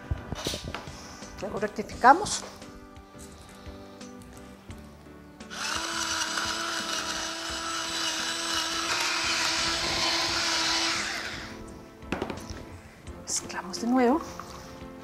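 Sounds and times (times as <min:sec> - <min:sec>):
electric grinders whining and grinding: 0:05.4 - 0:11.8.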